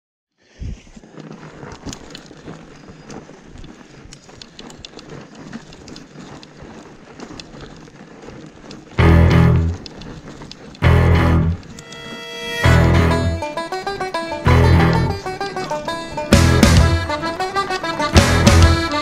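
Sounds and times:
bike clicks and knocks: 0:01.2 - 0:12.0.

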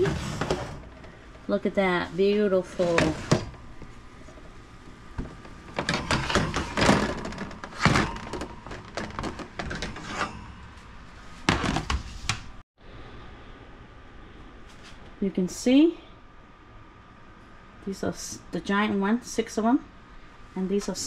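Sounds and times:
metal pan scraping on rack: 0:00.0 - 0:01.0, 0:05.7 - 0:11.6.

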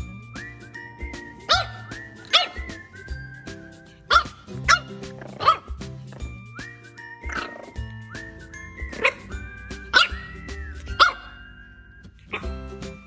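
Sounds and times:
background music: 0:00.0 - 0:13.0
puppies yipping: 0:01.1 - 0:05.8, 0:07.1 - 0:11.6, 0:12.2 - 0:12.7.

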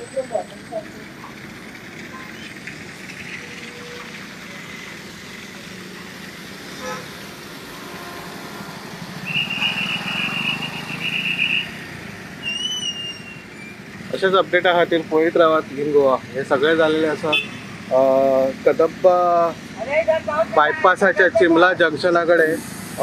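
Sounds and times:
vehicle passing close: 0:00.0 - 0:21.8
highway traffic passing: 0:00.0 - 0:23.0.

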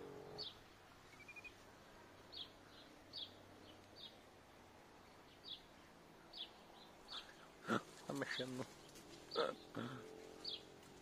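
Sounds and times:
faint high chirps: 0:00.0 - 0:01.6.

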